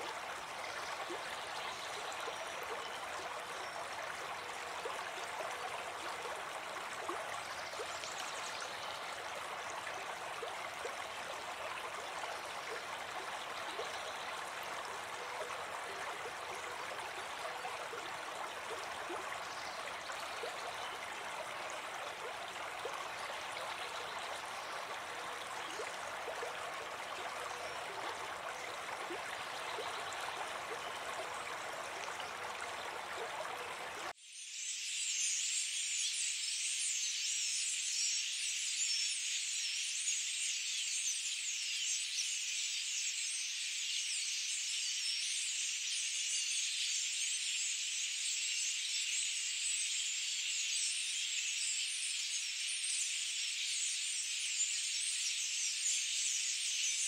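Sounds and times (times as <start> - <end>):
running water: 0.0 - 34.2.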